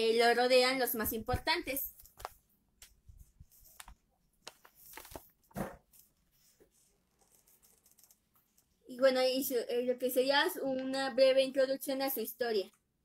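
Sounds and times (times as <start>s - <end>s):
paper pages rustling: 1.9s - 2.5s, 3.1s - 8.6s.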